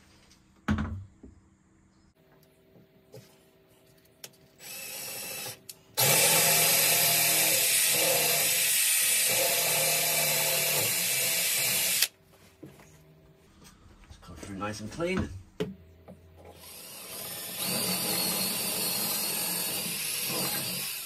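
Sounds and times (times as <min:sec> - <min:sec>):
drill boring through wood: 0:04.6 - 0:12.1, 0:16.5 - 0:21.0.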